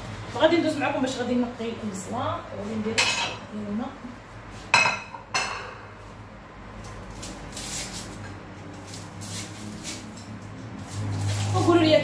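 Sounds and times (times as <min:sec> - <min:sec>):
onion skin crackling: 0:06.7 - 0:12.0.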